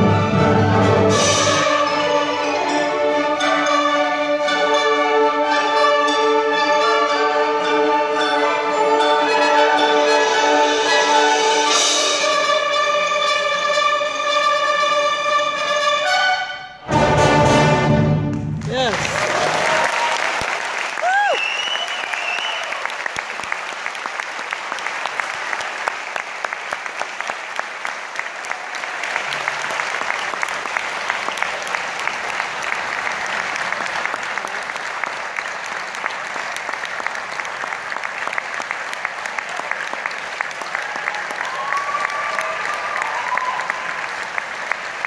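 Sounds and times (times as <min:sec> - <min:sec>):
audience applauding: 0:18.2 - 0:45.0.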